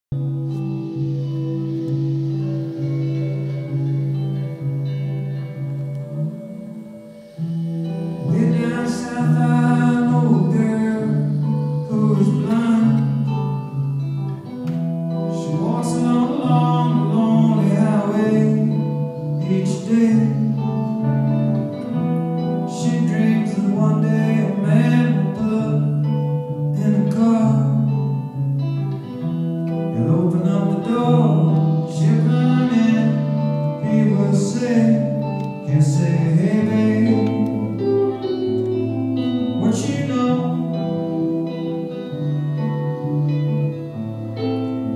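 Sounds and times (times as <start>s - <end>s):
guitar: 0.0s - 44.9s
low bass line: 0.1s - 44.9s
man singing: 7.8s - 13.8s, 15.1s - 21.3s, 22.5s - 28.4s, 29.9s - 43.8s.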